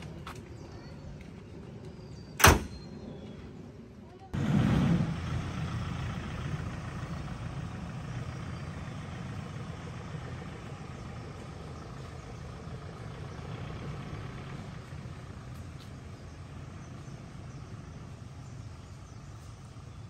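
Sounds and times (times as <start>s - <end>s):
car engine running: 4.4s - 20.0s.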